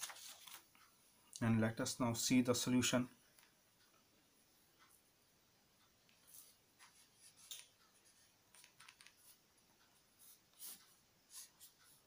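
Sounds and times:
pen scratching on paper: 0:10.2 - 0:12.0.

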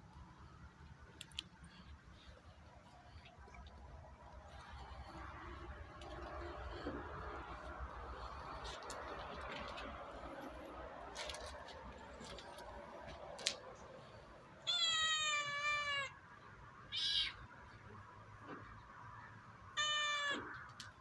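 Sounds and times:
cat meowing: 0:14.7 - 0:16.2, 0:19.8 - 0:20.6.

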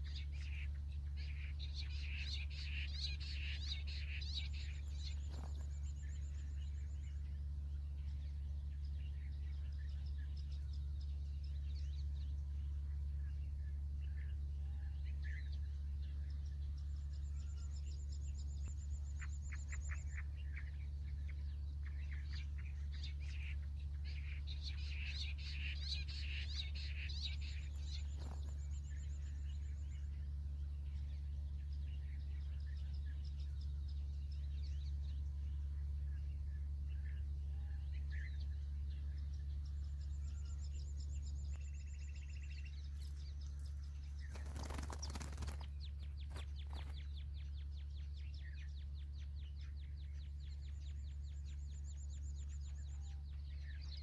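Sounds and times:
birds calling and chirping: 0:00.0 - 0:54.0
steady low hum: 0:00.0 - 0:54.0
high rapid bird trill: 0:40.2 - 0:47.2.

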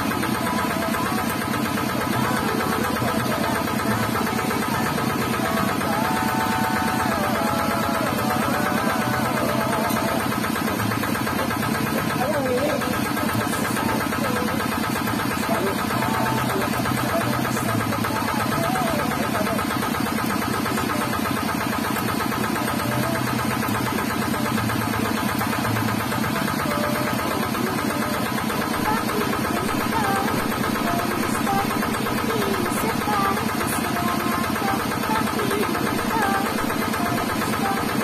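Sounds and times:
small engine chugging: 0:00.0 - 0:38.0.

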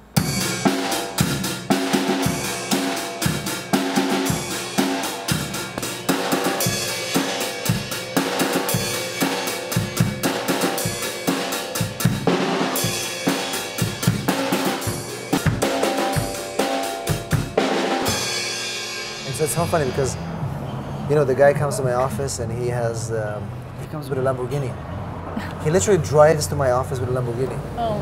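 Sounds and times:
background music with drum beat: 0:00.0 - 0:20.2.

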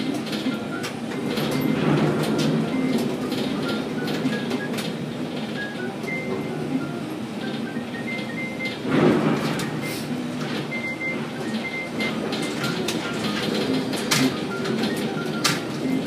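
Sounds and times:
crane machinery running: 0:00.0 - 0:16.0.

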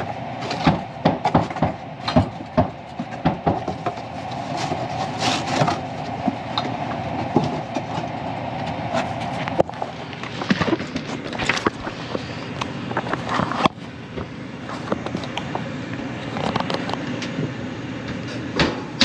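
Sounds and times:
furnace humming: 0:00.0 - 0:19.0
knocks and clatter: 0:00.4 - 0:12.2.

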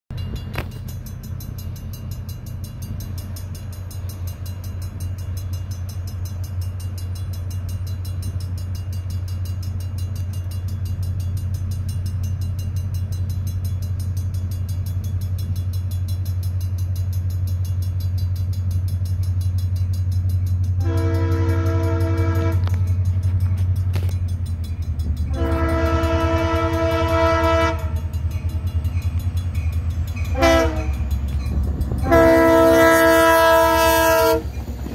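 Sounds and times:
diesel locomotive engine drone: 0:00.1 - 0:34.9
train air horn blasts: 0:20.8 - 0:22.8, 0:25.3 - 0:28.2, 0:30.3 - 0:31.1, 0:31.9 - 0:34.6.

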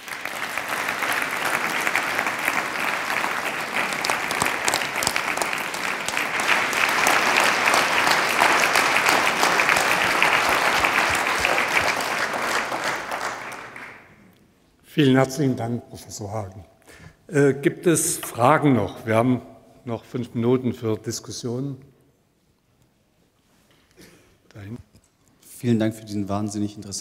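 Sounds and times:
audience applauding: 0:00.0 - 0:14.2.

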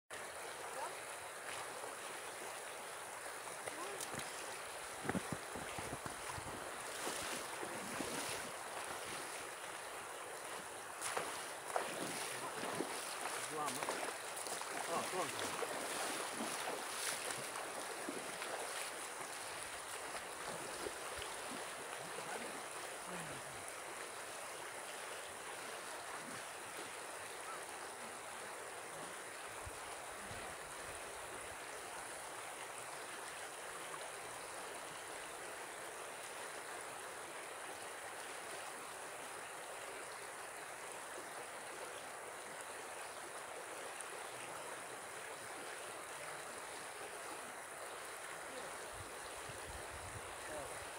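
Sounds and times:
river water rushing over stones: 0:00.1 - 0:50.9
feet wading through water: 0:00.2 - 0:30.2.

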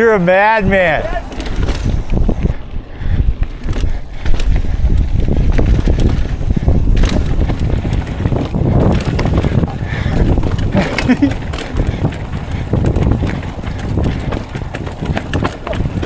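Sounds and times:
bike tyres rolling over rocks: 0:00.0 - 0:16.0
wind buffeting microphone: 0:00.0 - 0:16.0
bike knocking on rock: 0:01.2 - 0:02.4, 0:03.6 - 0:16.0.

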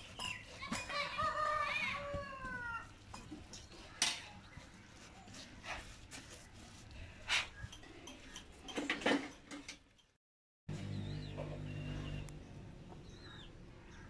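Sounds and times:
rooster crowing: 0:00.9 - 0:02.9.

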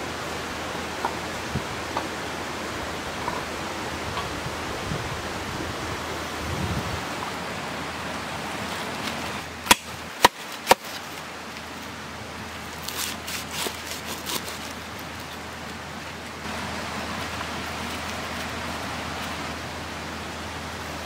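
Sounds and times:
cleaver chopping on wooden board: 0:09.6 - 0:11.0.

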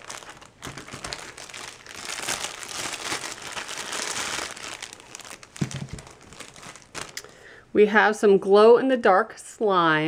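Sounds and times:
plastic bag crinkling: 0:00.0 - 0:07.5.

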